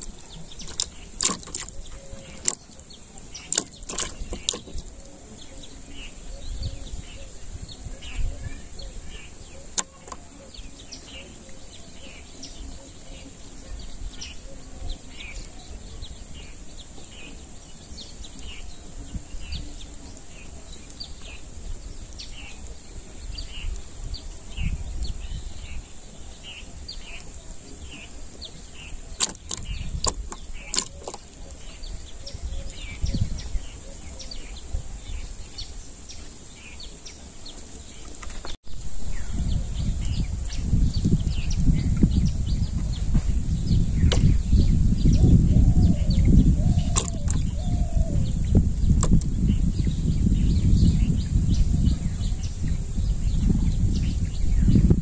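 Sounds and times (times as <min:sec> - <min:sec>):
sharp clicks: 0:00.0 - 0:02.8, 0:03.4 - 0:04.9, 0:29.2 - 0:31.5, 0:44.0 - 0:44.4, 0:46.9 - 0:47.6, 0:49.0 - 0:49.3
bird chirping: 0:00.0 - 0:55.0
wind rumble on microphone: 0:00.0 - 0:55.0.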